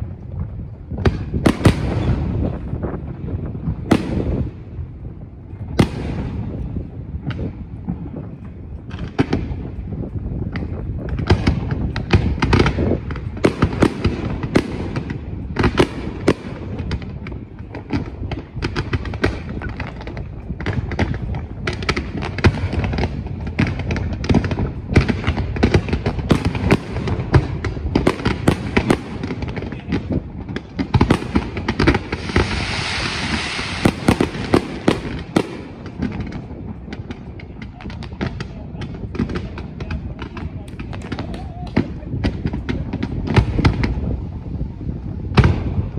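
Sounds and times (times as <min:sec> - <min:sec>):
fireworks bangs and crackling: 0:00.0 - 0:45.9
steady hiss: 0:31.3 - 0:36.3.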